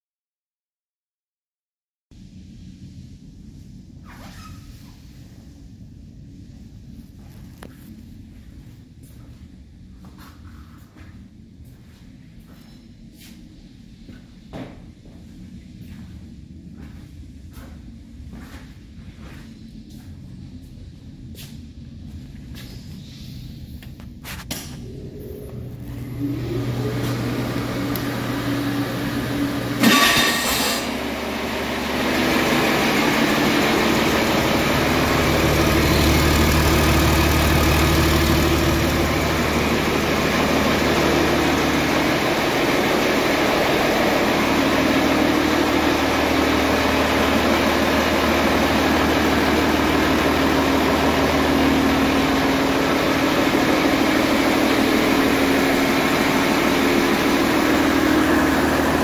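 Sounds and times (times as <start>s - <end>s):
diesel engine firing and idling: 24.6s - 59.0s
diesel engine cranking: 24.8s - 59.0s.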